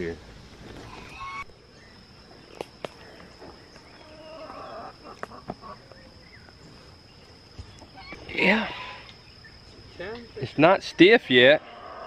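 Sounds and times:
high-pitched insect drone: 0.0 - 12.0
chickens clucking: 0.8 - 1.5, 3.7 - 6.6, 7.7 - 8.9.

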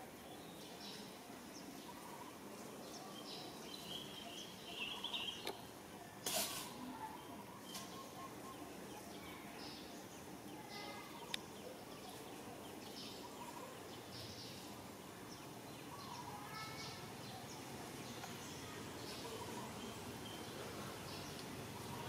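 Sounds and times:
faint chirping calls: 0.2 - 5.7.

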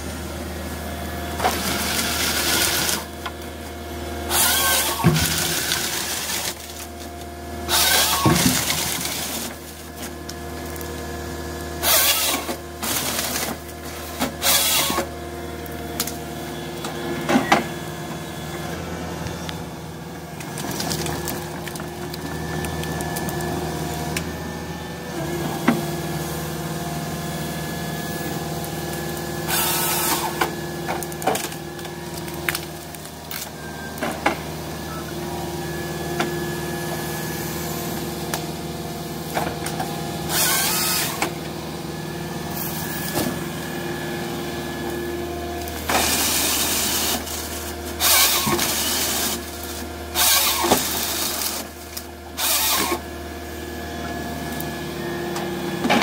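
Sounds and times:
excavator hydraulic whine: 0.0 - 56.0
chainsaw cutting through trunks: 1.3 - 3.3, 4.2 - 15.2, 25.1 - 33.5, 36.2 - 41.5, 42.4 - 53.2.

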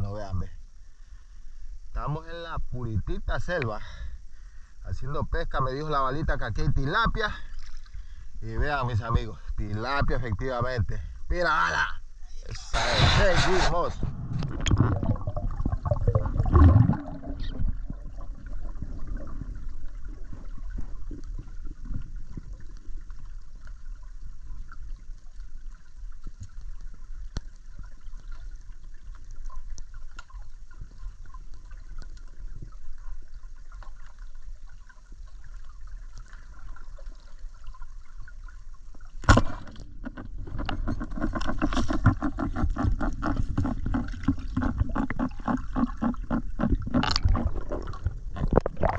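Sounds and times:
muffled underwater noise: 5.3 - 22.0
water rushing and bubbling: 12.6 - 48.9.

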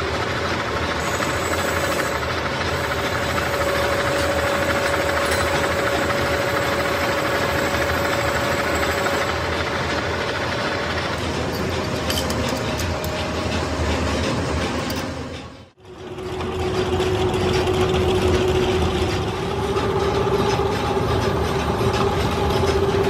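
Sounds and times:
metal lathe cutting: 0.0 - 23.0.

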